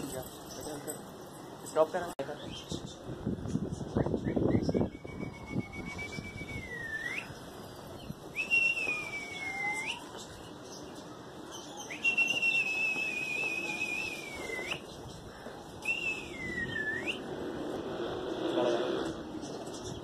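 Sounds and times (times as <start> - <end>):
person whistling high notes: 8.4 - 10.1, 12.0 - 14.8.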